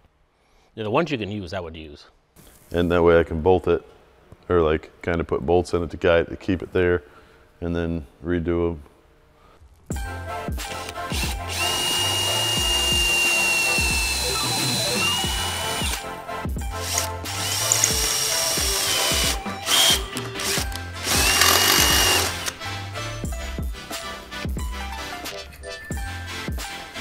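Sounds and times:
cordless drill drilling through metal: 10.8s - 16.0s, 16.8s - 22.6s.

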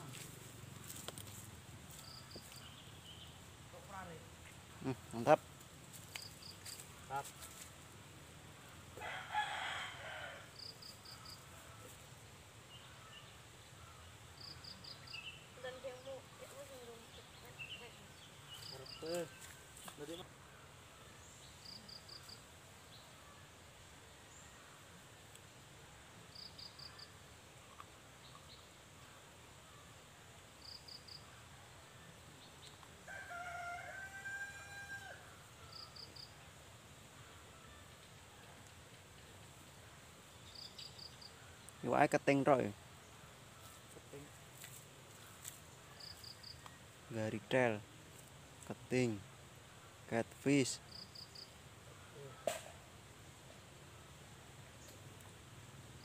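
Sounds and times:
faint countryside ambience: 0.0s - 56.0s
rooster crowing: 9.0s - 10.7s, 33.0s - 35.8s.

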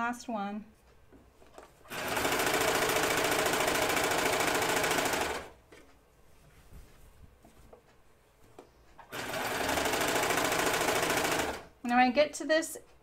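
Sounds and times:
overlock machine stitching: 1.8s - 5.6s, 9.0s - 11.8s.

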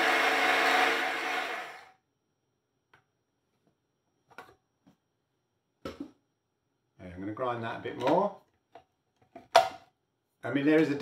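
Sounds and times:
coffee grinder whirring: 0.0s - 2.0s.

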